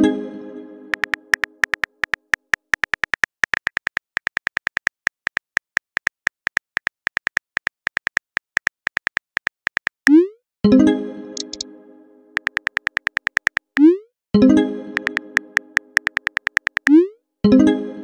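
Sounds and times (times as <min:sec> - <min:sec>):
phone keyboard tap clicks: 0:00.9 - 0:10.0, 0:11.4 - 0:11.6, 0:12.4 - 0:13.8, 0:15.0 - 0:16.9.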